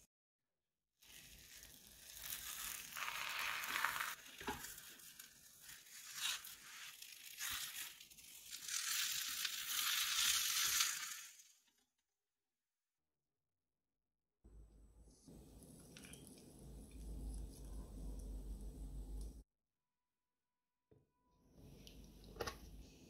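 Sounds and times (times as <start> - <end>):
omelette sizzling in a pan: 1.0 - 11.8.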